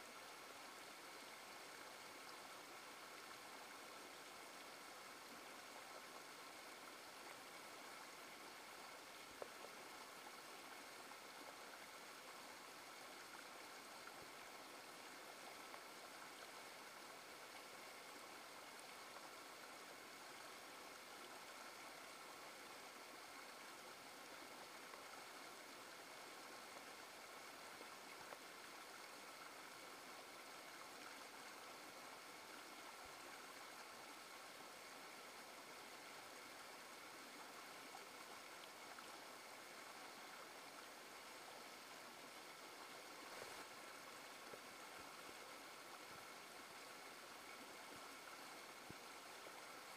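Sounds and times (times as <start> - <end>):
stream rushing over rocks: 0.0 - 49.9.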